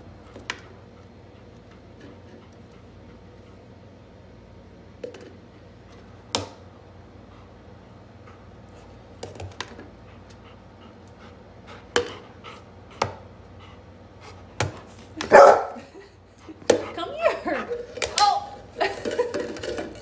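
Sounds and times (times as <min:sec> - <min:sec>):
dog barking: 0:15.2 - 0:15.8
plastic cups tapping on table: 0:17.7 - 0:20.0.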